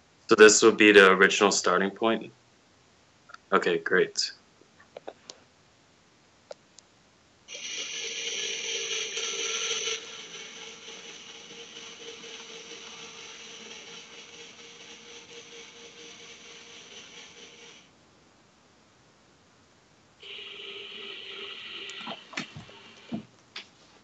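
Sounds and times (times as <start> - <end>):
small geared motor whirring: 7.5 - 17.8.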